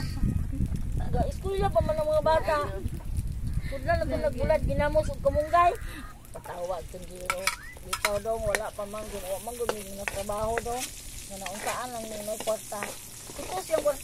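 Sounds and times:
onion and garlic sizzling in oil: 0:00.4 - 0:14.0
metal spatula scraping wok: 0:06.4 - 0:14.0.

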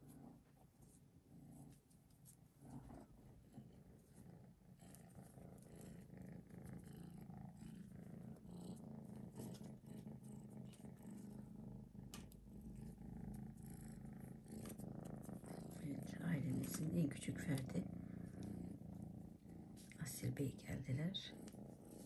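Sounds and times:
kitten purring: 0:00.0 - 0:22.0.

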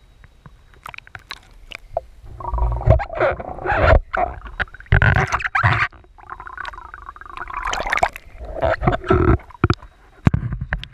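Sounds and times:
water sloshing and gurgling: 0:00.7 - 0:10.9.

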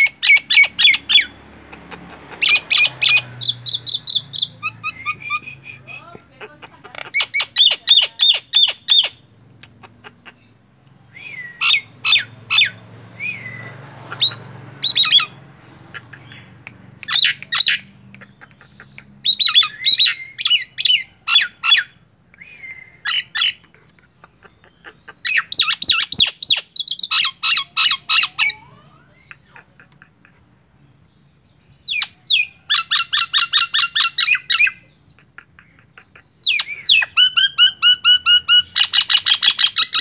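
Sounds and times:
bird rapid sharp calls: 0:00.0 - 0:28.6
bird upslurred whistles: 0:02.4 - 0:06.2, 0:11.1 - 0:12.3, 0:13.2 - 0:13.7, 0:22.4 - 0:23.2.

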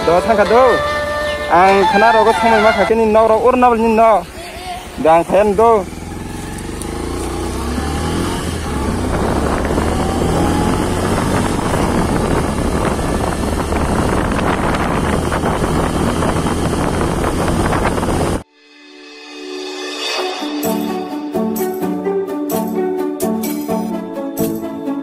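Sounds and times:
vehicle engine hum: 0:00.0 - 0:18.5
rushing noise: 0:07.0 - 0:21.6.

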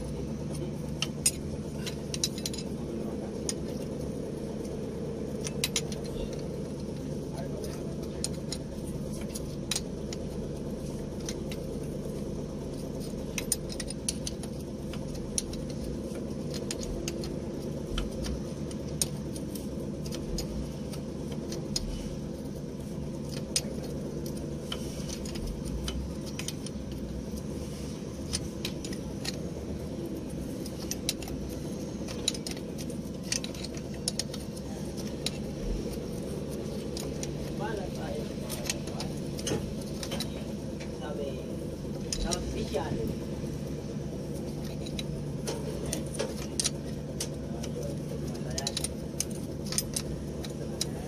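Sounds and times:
metal wrench clinking on nuts: 0:00.0 - 0:27.5
steady low hum: 0:00.0 - 0:51.0.

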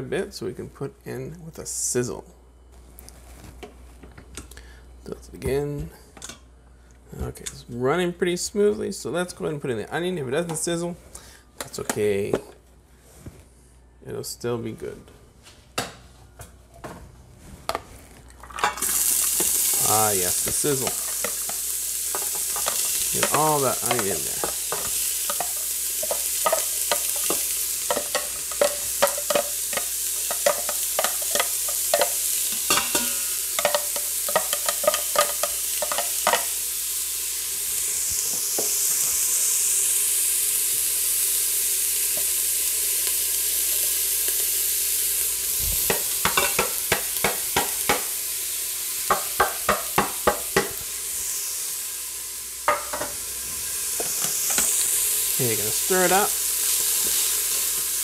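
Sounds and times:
onion sizzling in hot oil: 0:18.4 - 0:58.0
spatula tapping and scraping container: 0:20.5 - 0:36.5, 0:45.9 - 0:48.1.

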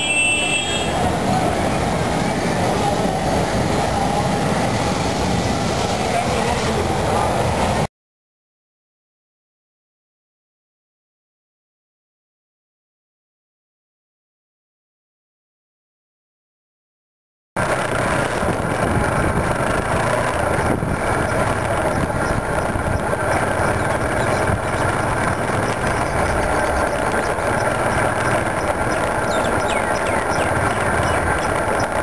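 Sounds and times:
road noise: 0:00.0 - 0:07.9, 0:17.6 - 0:32.0
wind noise: 0:17.6 - 0:32.0
motorcycle engine running: 0:17.8 - 0:29.4.

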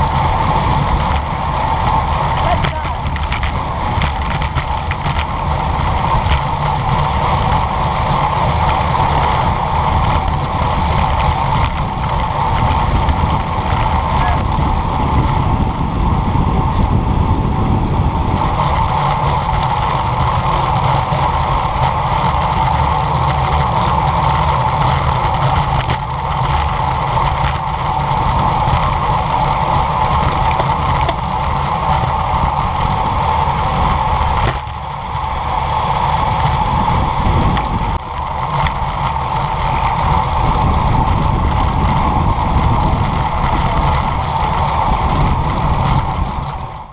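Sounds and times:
wind rush: 0:00.0 - 0:20.8, 0:27.0 - 0:46.9
road rumble: 0:00.0 - 0:46.9.

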